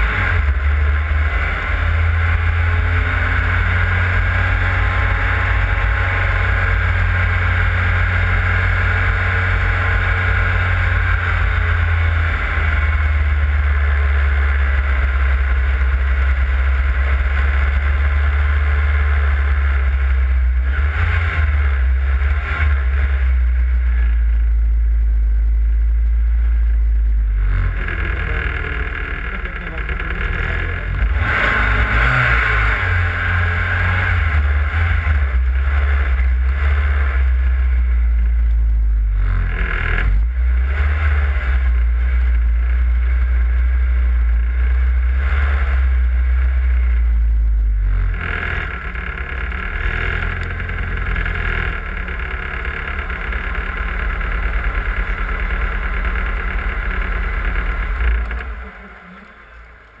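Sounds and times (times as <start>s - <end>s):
car engine low drone: 0.0s - 60.0s.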